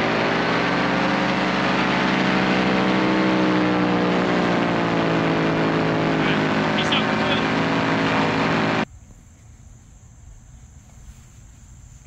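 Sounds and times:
paramotor engine running: 0:00.0 - 0:08.9.

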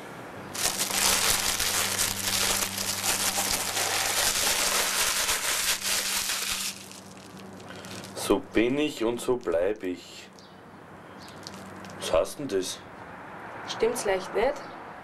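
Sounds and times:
foil gift wrap crinkling: 0:00.5 - 0:08.4, 0:11.3 - 0:12.1.

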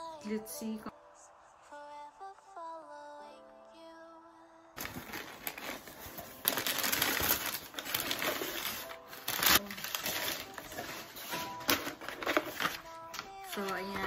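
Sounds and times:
packing paper rustling and crinkling: 0:04.8 - 0:14.0.

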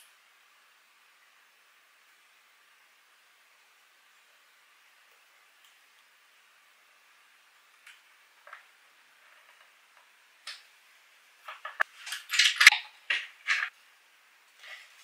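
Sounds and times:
wooden clamps knocking and clattering: 0:11.5 - 0:13.7.

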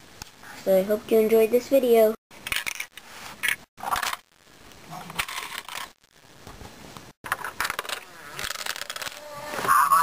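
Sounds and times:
plastic mechanism clicks and rattles: 0:07.2 - 0:09.3.

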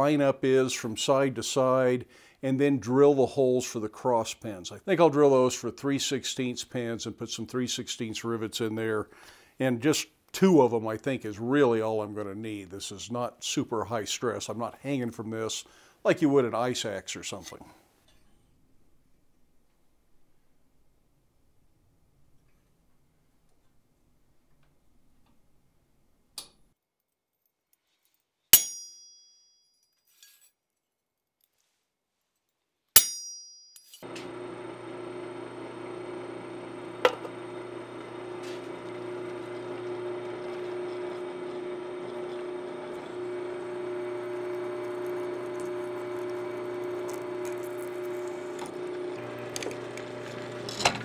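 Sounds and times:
ringing metal clinks: 0:33.0 - 0:34.0
drill press humming: 0:34.0 - 0:51.0.

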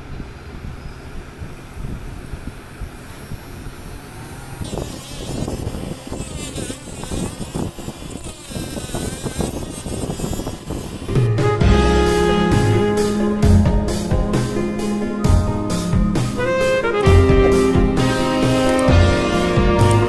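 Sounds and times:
small electric motor running: 0:01.6 - 0:13.2
cutting disc grinding plastic: 0:03.5 - 0:12.8, 0:17.0 - 0:20.0
music: 0:11.0 - 0:20.0.

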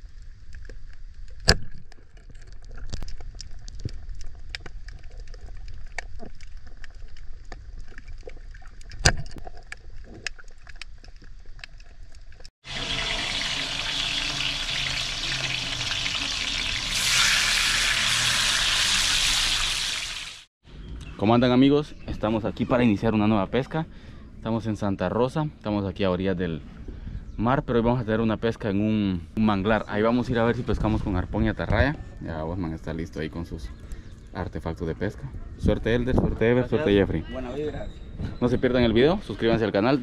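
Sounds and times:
underwater crackle of clicks: 0:00.5 - 0:12.5
fish sizzling in a pan: 0:12.6 - 0:20.5.

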